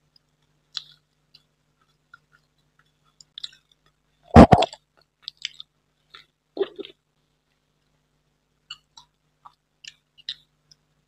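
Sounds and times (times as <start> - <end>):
wet lip smacks and mouth clicks: 0.7 - 3.7, 4.4 - 7.0, 8.7 - 10.8.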